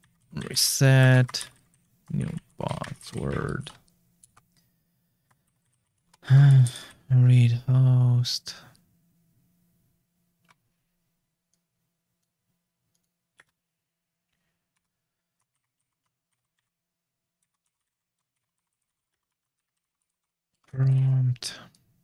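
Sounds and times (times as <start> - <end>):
keyboard typing: 0.0 - 4.6, 5.2 - 6.2, 14.3 - 16.8, 17.4 - 21.0.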